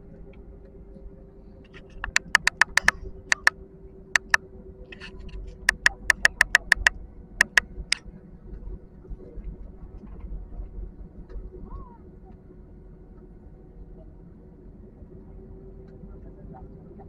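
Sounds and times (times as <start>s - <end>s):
sharp dry clicks: 1.7s - 3.5s, 4.2s - 4.4s, 5.7s - 7.6s.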